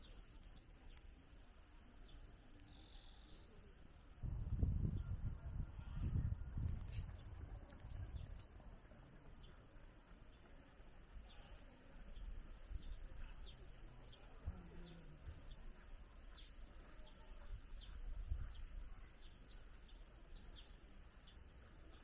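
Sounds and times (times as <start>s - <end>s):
small birds chirping: 0.0s - 4.0s, 4.8s - 22.0s.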